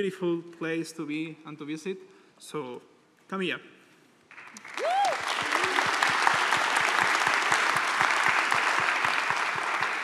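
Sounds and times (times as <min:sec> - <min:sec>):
audience applauding: 0:04.3 - 0:10.0.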